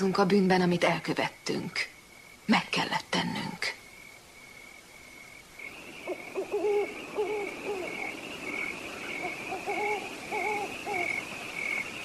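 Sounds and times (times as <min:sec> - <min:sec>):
crickets chirping: 0:00.0 - 0:12.0
owl hooting: 0:05.7 - 0:12.0.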